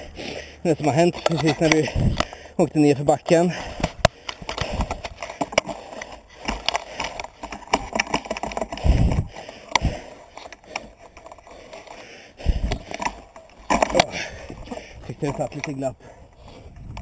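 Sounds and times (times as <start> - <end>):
bike wheel knocking and clicking: 0.9 - 15.9.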